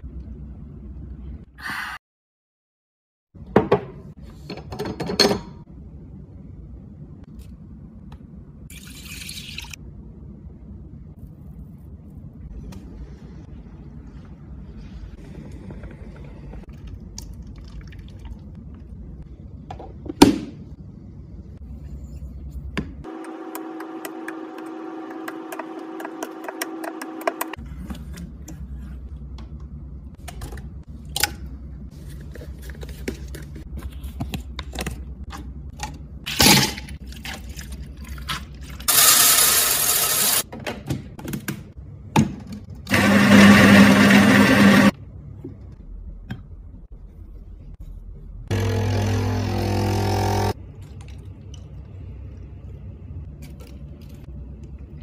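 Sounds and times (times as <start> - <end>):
coffee grinder grinding: 38.9 - 40.4, 42.9 - 44.9, 48.5 - 50.6.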